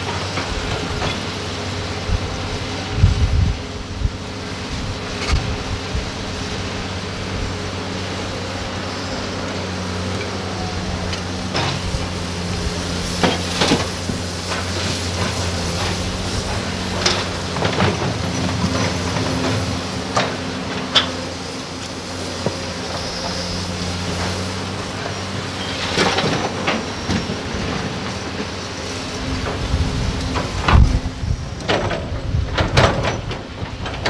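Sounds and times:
excavator diesel engines running: 0.0s - 34.0s
soil and rocks clattering: 10.0s - 34.0s.

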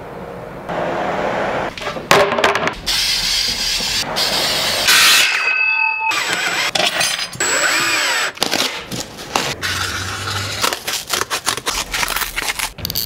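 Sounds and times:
power tool whining: 6.1s - 8.3s
cutting noises: 7.4s - 13.0s.

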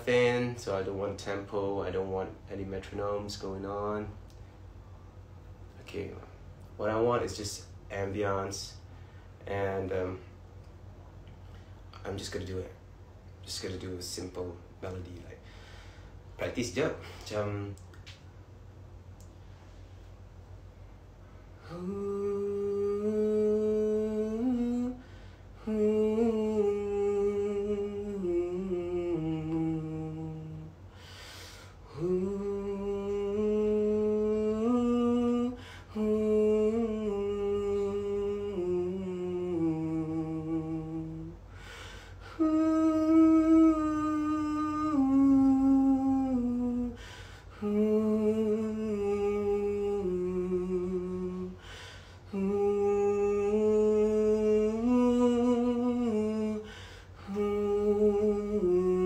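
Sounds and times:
man singing wordless melody: 0.0s - 4.3s, 5.7s - 10.4s, 16.4s - 17.8s, 21.6s - 31.0s, 31.8s - 59.0s
man breathing: 8.9s - 9.4s, 15.4s - 16.4s, 25.0s - 25.7s, 30.9s - 32.0s, 35.6s - 36.0s, 41.4s - 42.4s, 46.9s - 47.6s, 51.5s - 52.3s, 56.6s - 57.3s.

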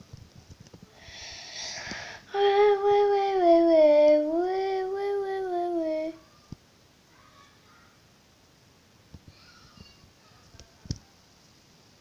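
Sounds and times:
short breathy hiss: 0.9s - 2.3s
boy singing a long note: 1.6s - 6.2s.

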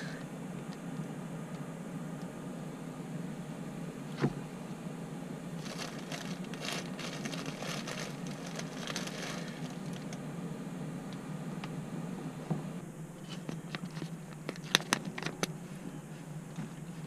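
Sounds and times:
hot pot humming: 0.0s - 17.0s.

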